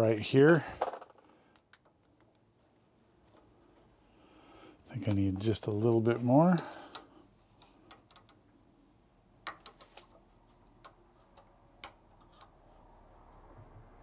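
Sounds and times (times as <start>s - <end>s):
faint metal clicks: 4.9s - 8.5s.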